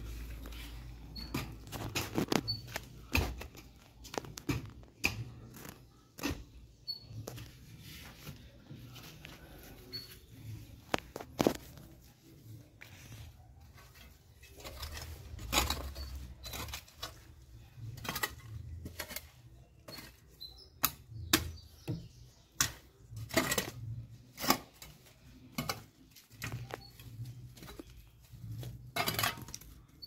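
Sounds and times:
hand spade scraping soil: 0:00.0 - 0:03.7, 0:12.8 - 0:30.0.

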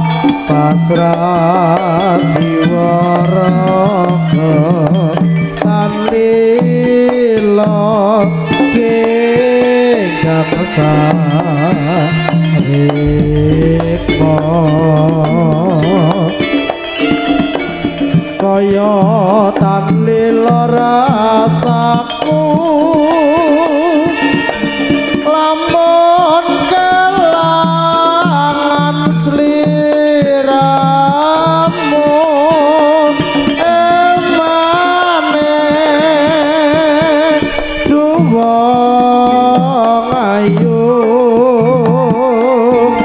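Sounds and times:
hand drums: 0:00.0 - 0:43.0
wavering lead melody: 0:12.1 - 0:18.1
steady low pulses: 0:13.0 - 0:16.6.

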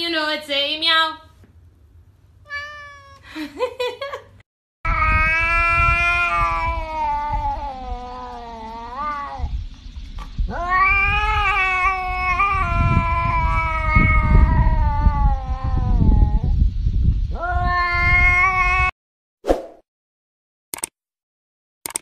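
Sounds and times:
cat yowling: 0:02.5 - 0:03.2, 0:04.9 - 0:09.5, 0:10.5 - 0:16.5, 0:17.4 - 0:18.9.

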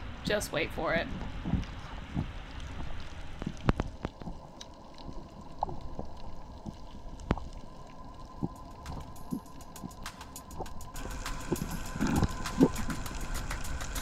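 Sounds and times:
faint steady whine: 0:00.0 - 0:14.0
muffled underwater rush: 0:00.8 - 0:14.0
sharp clicks and crackles: 0:01.4 - 0:14.0.

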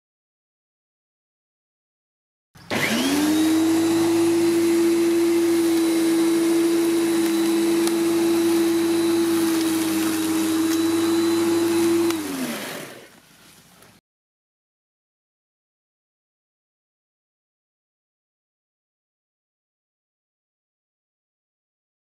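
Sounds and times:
electric lawnmower motor whine: 0:02.6 - 0:13.2.

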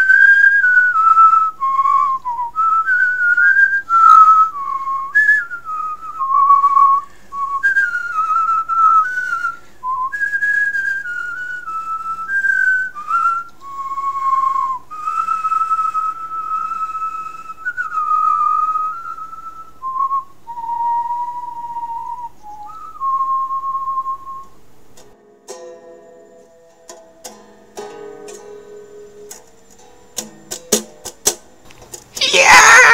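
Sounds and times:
person whistling a slow tune: 0:00.0 - 0:24.6.

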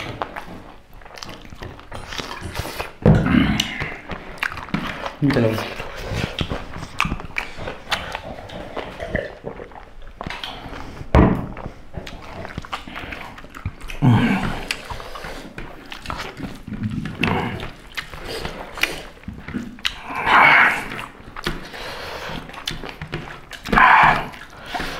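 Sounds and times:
wet chewing and mouth clicks: 0:00.0 - 0:24.9
breathy grunts: 0:02.4 - 0:04.2, 0:13.9 - 0:15.3, 0:19.6 - 0:21.1, 0:23.7 - 0:24.9.

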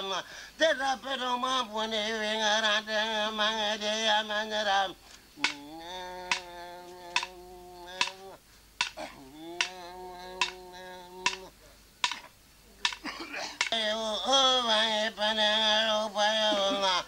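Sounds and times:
man chanting: 0:00.0 - 0:12.2, 0:13.6 - 0:17.0
sharp percussive beat: 0:06.3 - 0:06.6, 0:07.2 - 0:08.2, 0:08.8 - 0:09.8, 0:10.4 - 0:13.8.

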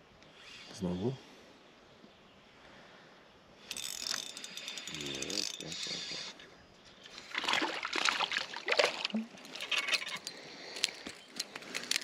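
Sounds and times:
fish splashing at water surface: 0:07.2 - 0:09.5.

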